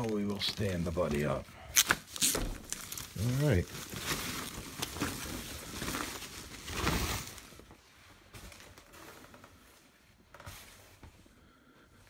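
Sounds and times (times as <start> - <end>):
packing material rustling: 0.0 - 9.6.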